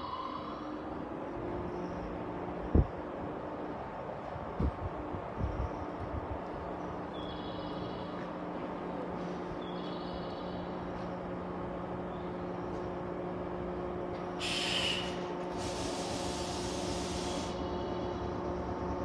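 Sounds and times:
electric train humming: 0:00.0 - 0:19.0
air hissing: 0:14.4 - 0:17.7.

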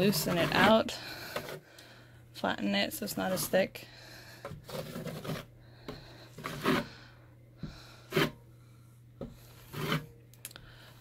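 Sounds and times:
taping knife scraping compound: 0:00.0 - 0:01.6, 0:04.4 - 0:05.5, 0:06.3 - 0:06.9, 0:08.1 - 0:08.4, 0:09.3 - 0:10.2.

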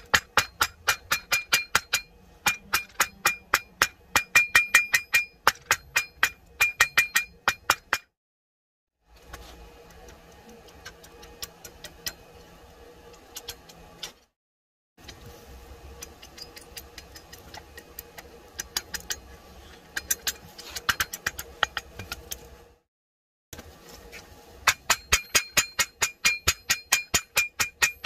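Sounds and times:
hammer striking metal on anvil: 0:00.0 - 0:08.1, 0:24.6 - 0:28.0.

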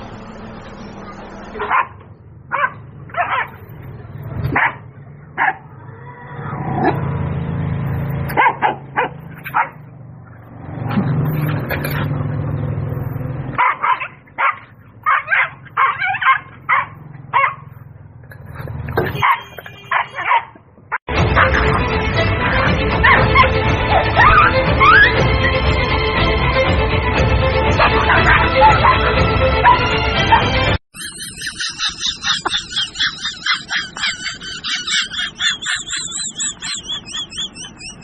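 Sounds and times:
high yipping animal calls: 0:24.2 - 0:25.2, 0:30.9 - 0:38.0.

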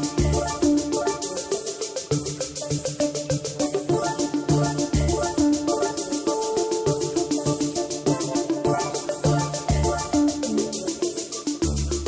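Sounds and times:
steady electronic beat: 0:00.0 - 0:12.0.

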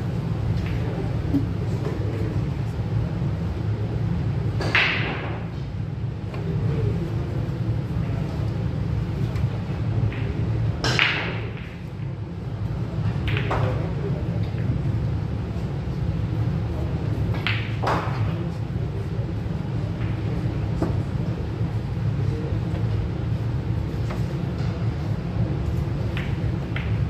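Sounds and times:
steady low hum: 0:00.0 - 0:27.0
pool balls clacking: 0:04.6 - 0:05.5, 0:10.1 - 0:12.0.

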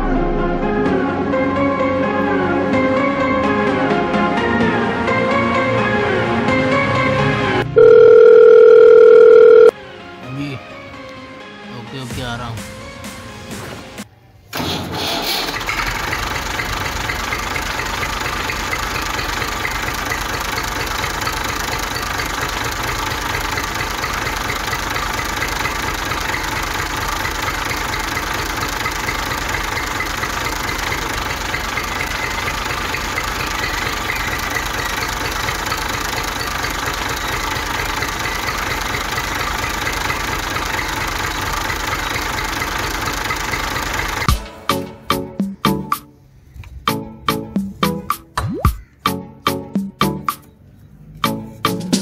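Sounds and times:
engine idling: 0:15.5 - 0:44.4.

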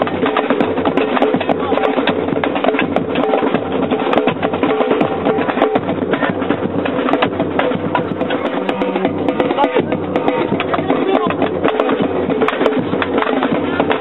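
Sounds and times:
fast percussion music: 0:04.6 - 0:13.9.

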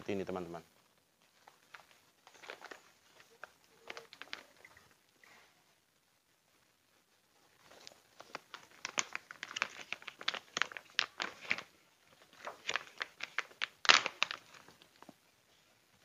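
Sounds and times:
plastic bag crinkling: 0:01.2 - 0:05.0, 0:07.5 - 0:15.1.

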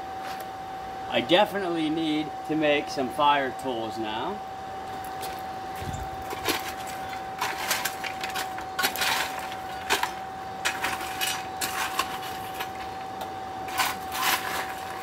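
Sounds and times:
blower whining: 0:04.8 - 0:10.6
coal clinking and scraping: 0:05.8 - 0:13.0, 0:13.7 - 0:15.0.

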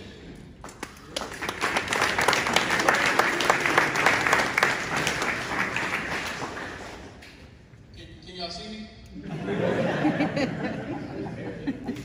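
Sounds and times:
audience applauding: 0:00.6 - 0:07.3.

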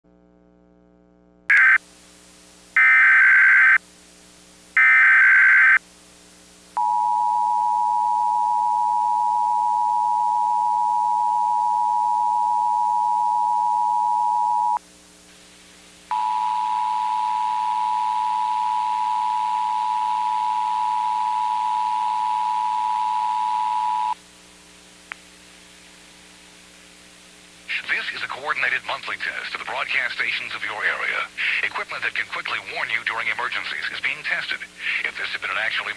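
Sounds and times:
two-tone attention signal: 0:06.8 - 0:14.8, 0:16.1 - 0:24.2.

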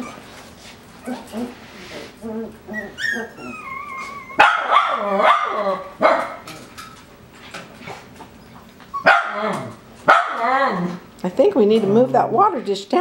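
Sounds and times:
puppies whining: 0:00.0 - 0:11.1
puppies yapping barks: 0:02.6 - 0:06.5, 0:08.5 - 0:11.0.

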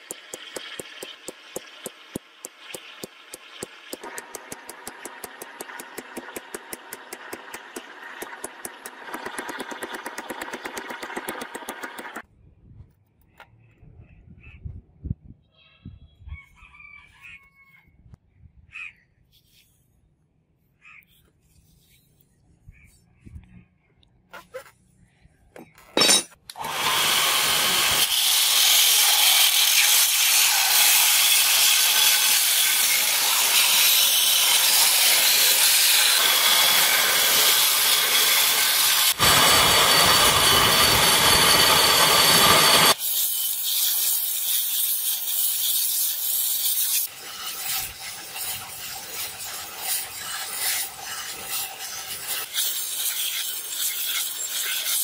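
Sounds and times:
belt grinder grinding steel: 0:00.0 - 0:12.2, 0:26.0 - 0:55.0.

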